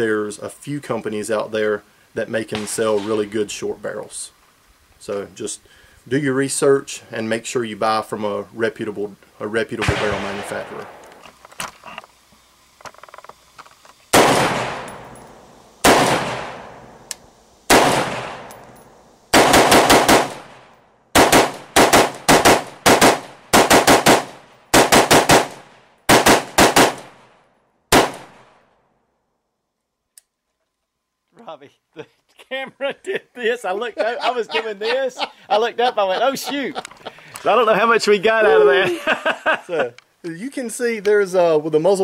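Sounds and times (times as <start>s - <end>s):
rifle shots with echoing tail: 2.5s - 3.4s, 9.8s - 11.2s, 14.1s - 17.1s, 17.7s - 28.8s.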